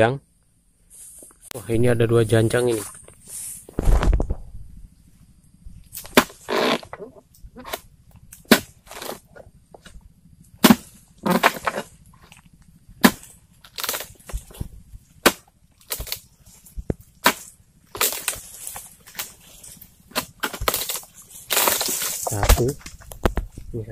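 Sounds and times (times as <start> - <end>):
palm frond rustling: 2.3 - 23.8
chisel striking palm frond bases: 5.9 - 7.0, 7.6 - 10.0, 10.6 - 12.4, 13.0 - 16.2, 16.8 - 23.6.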